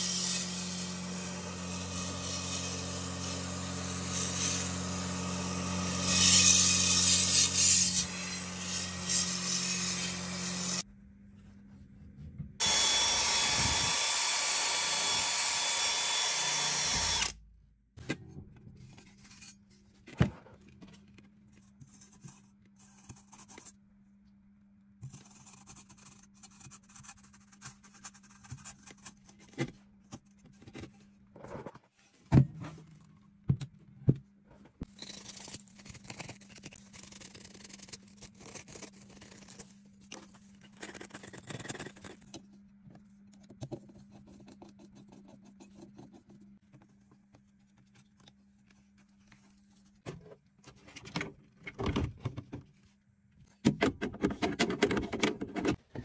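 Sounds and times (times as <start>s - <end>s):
small electric motor running: 12.6s - 17.3s.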